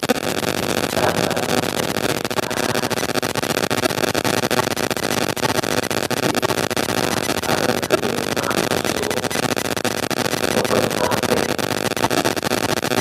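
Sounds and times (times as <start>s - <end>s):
loud steady hiss: 0.0s - 13.0s
man lecturing into microphone: 10.5s - 11.6s.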